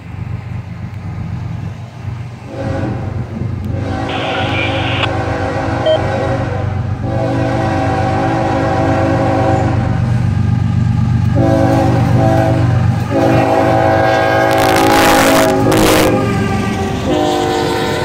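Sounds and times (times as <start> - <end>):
diesel locomotive engine rumble: 0.0 - 18.0
locomotive air horn blasts: 2.5 - 3.1, 3.7 - 10.0, 11.4 - 18.0.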